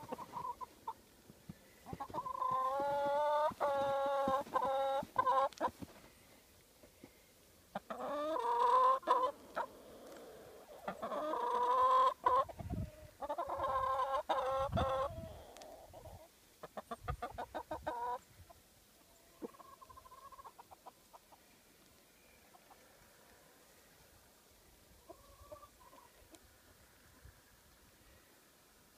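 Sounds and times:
chickens clucking: 0.0 - 1.1, 1.8 - 6.0, 7.7 - 21.5, 22.4 - 23.3, 24.8 - 26.5
chickens calling: 0.0 - 6.1, 7.7 - 23.7, 24.8 - 27.3.

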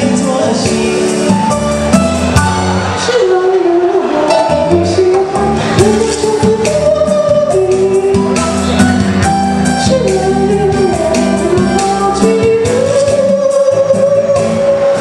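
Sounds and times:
backing track with bass and beat: 0.0 - 15.0
person singing: 0.0 - 15.0.

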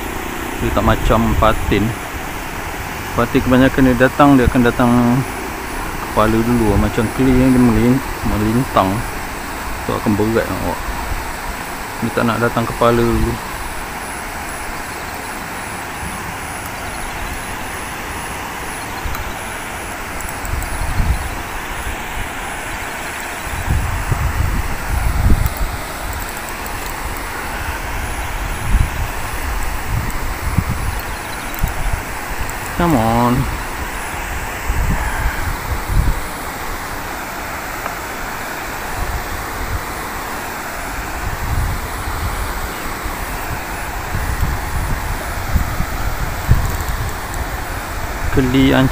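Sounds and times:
distant road traffic hum: 0.0 - 48.9
wind buffeting microphone: 0.0 - 48.9.

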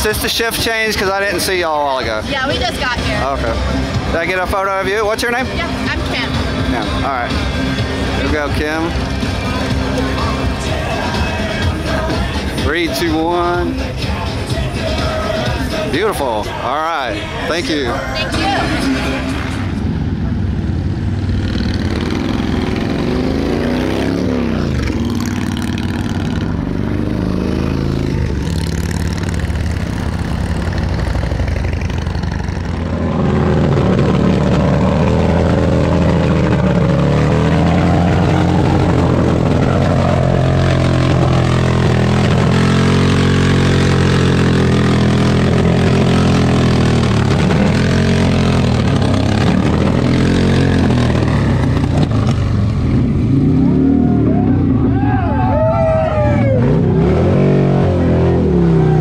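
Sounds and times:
motorcycles riding past: 0.0 - 59.0
motorcycle engine revving hard: 21.2 - 54.9, 56.3 - 59.0.

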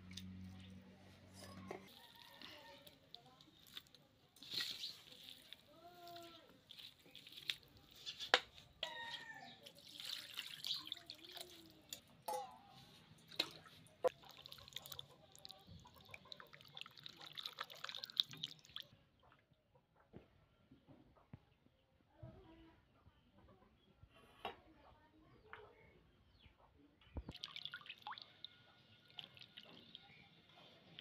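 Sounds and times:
meat washed in water splashing: 1.9 - 8.0, 9.6 - 12.1, 13.2 - 18.9.

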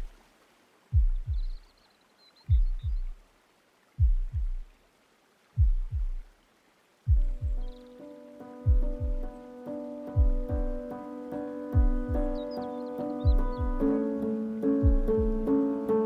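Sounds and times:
heartbeat thuds: 0.9 - 1.6, 2.5 - 3.2, 4.0 - 4.7, 5.6 - 6.3, 7.1 - 7.8, 8.6 - 9.4, 10.2 - 10.9, 11.8 - 12.6, 13.2 - 14.0, 14.8 - 15.6
sustained music tones: 7.1 - 16.0.

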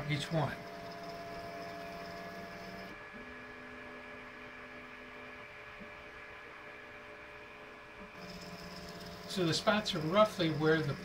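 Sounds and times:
stepper motors humming: 0.0 - 3.0, 8.2 - 11.0.

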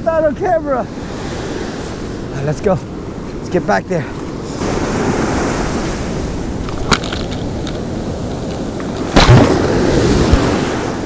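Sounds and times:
ocean surf washing: 0.0 - 11.0
wind on microphone: 4.2 - 11.0
loud thump: 9.1 - 10.5.

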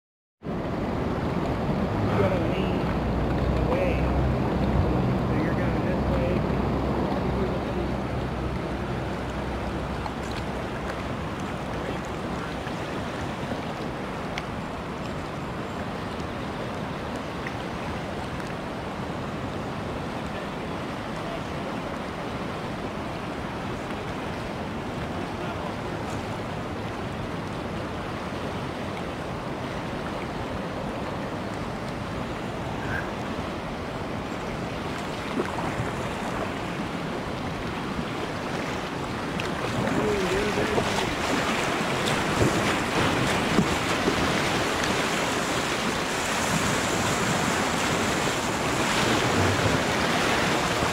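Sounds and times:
river water rushing: 0.4 - 50.9
waves splashing over kayak: 0.4 - 50.9
wind buffeting microphone: 35.2 - 50.9.

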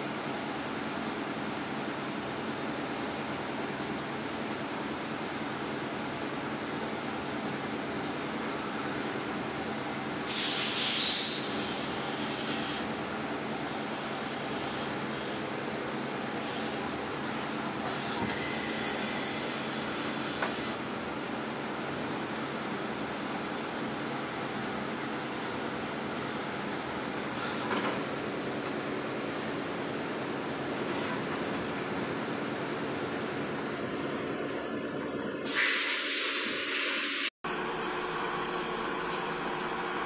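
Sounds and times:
lathe mechanical hum: 11.0 - 35.4, 37.5 - 40.0
high hiss of spray: 35.4 - 37.3.

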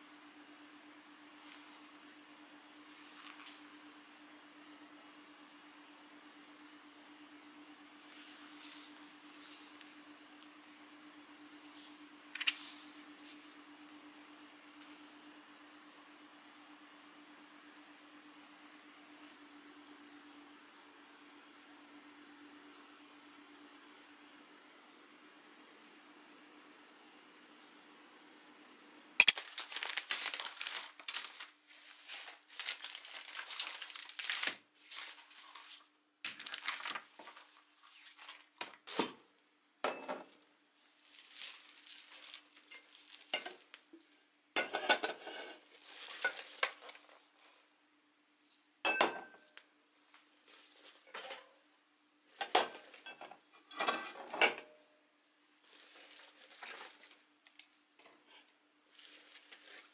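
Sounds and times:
bag rustling: 29.3 - 35.7, 41.0 - 43.3.

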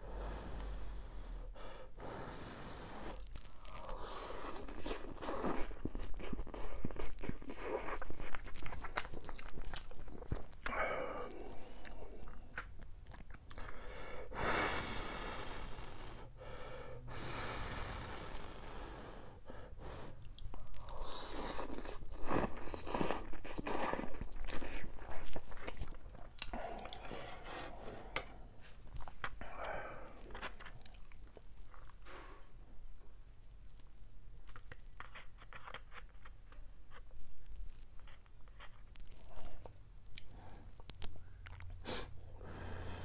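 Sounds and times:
wet chewing: 3.1 - 13.8, 20.2 - 27.2, 30.0 - 32.1.

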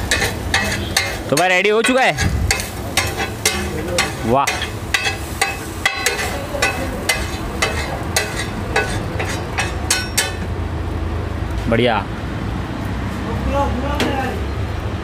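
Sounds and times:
metal spatula scraping a griddle: 0.0 - 10.5.

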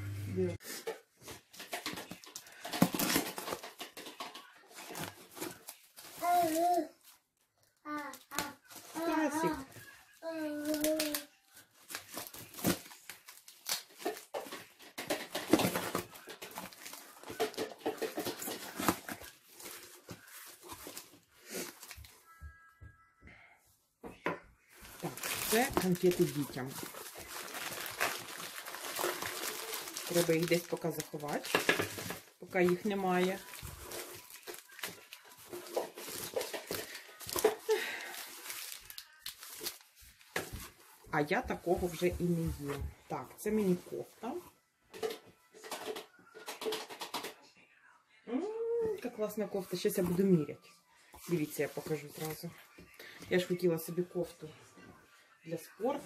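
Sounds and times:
cardboard rustling and crinkling: 0.6 - 7.3, 8.4 - 22.2, 24.8 - 44.4, 51.2 - 53.5
packing tape peeling and tearing: 10.4 - 14.2, 26.8 - 30.8.

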